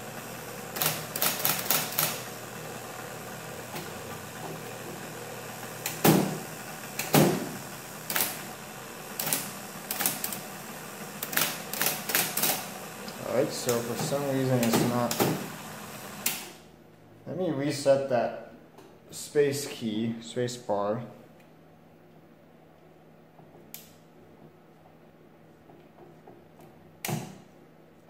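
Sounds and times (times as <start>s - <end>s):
typewriter motor humming: 0.0s - 16.6s.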